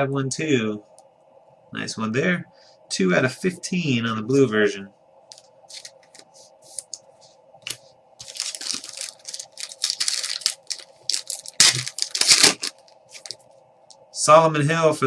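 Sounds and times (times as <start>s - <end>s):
cards and plastic sleeve rustling: 5.3s - 7.0s, 7.6s - 13.4s.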